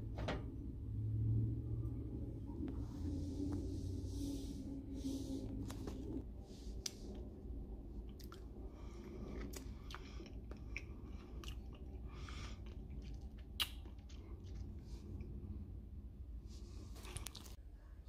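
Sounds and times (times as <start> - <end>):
low hum: 0.0 - 18.0
person chewing with wet mouth clicks: 8.1 - 8.5, 9.1 - 14.8.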